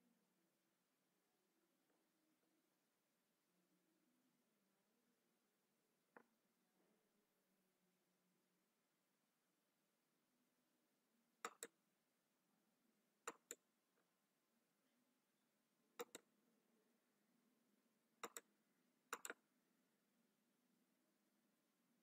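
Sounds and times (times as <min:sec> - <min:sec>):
faint computer mouse clicks: 0:11.4 - 0:11.8, 0:13.2 - 0:13.6, 0:16.0 - 0:16.3, 0:18.2 - 0:18.5, 0:19.1 - 0:19.4.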